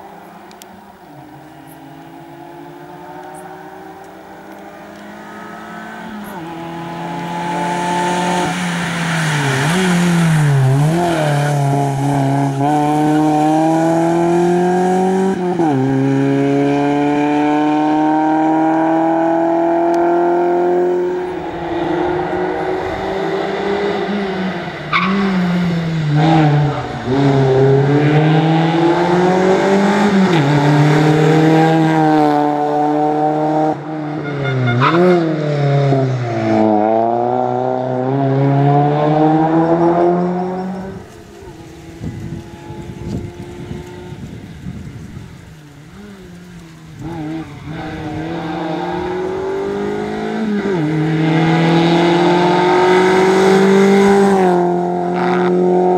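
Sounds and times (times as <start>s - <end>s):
rally car engine revving hard: 6.2s - 34.2s, 34.8s - 41.0s, 47.0s - 55.9s.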